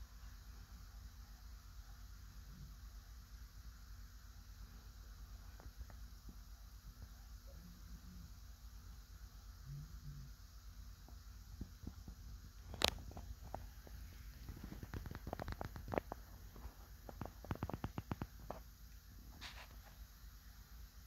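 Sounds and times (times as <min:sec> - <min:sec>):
faint clicks and crackles: 0:11.0 - 0:20.1.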